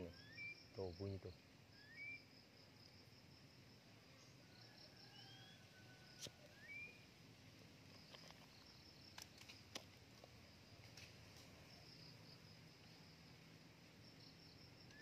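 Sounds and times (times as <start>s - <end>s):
crickets buzzing: 0.0s - 15.0s
bird whistled calls: 0.1s - 0.6s, 1.8s - 2.2s, 6.5s - 7.0s.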